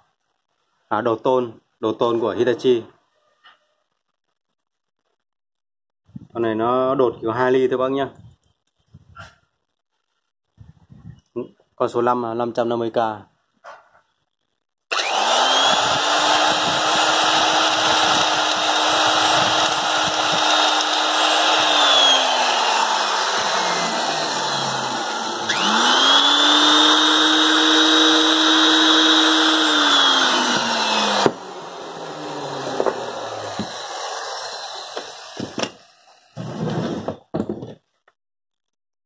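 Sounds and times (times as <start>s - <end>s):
nibbler motor whine: 14.9s - 36.2s.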